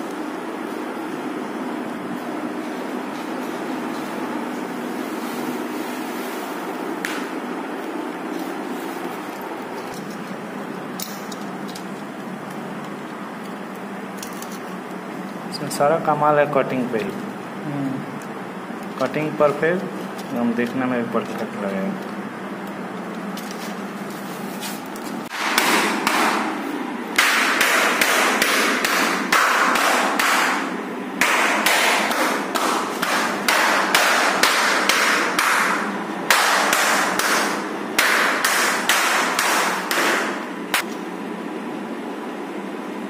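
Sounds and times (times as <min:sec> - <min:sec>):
sharp hammering knocks: 0:25.3 - 0:26.6, 0:27.2 - 0:40.4.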